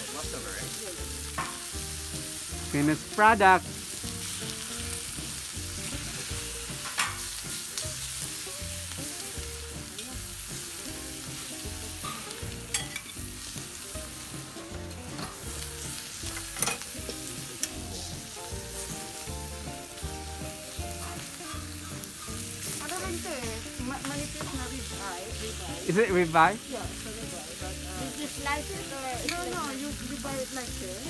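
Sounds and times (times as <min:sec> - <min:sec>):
meat sizzling on steel plate: 0:00.0 - 0:31.0
metal tongs clicking on plate: 0:12.7 - 0:13.2.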